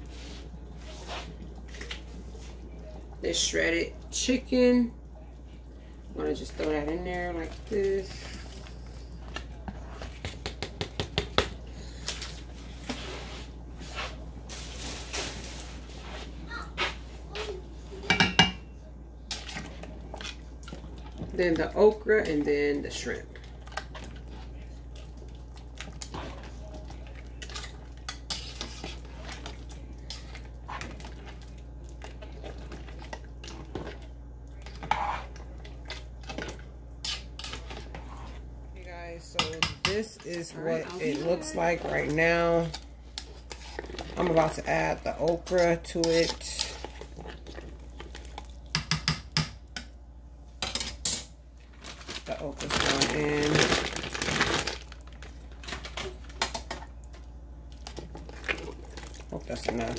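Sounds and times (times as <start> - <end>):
steady low hum: 0.0 - 59.9
kitchenware clicking and tapping: 18.0 - 18.7, 39.3 - 40.1, 48.7 - 49.9.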